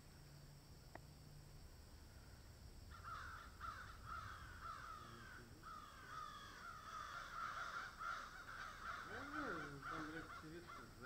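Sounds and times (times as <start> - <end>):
crows cawing: 2.9 - 11.0.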